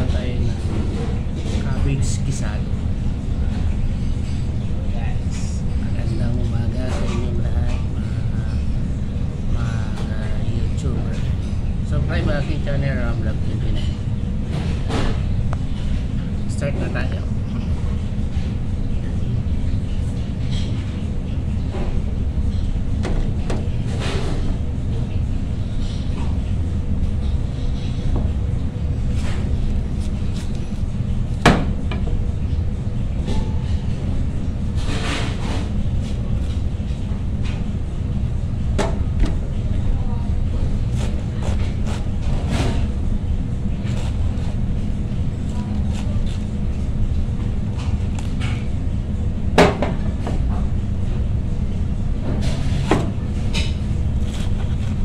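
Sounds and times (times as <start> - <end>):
knife cutting cabbage: 29.1 - 31.4, 40.8 - 42.9, 43.7 - 46.9, 52.6 - 55.0.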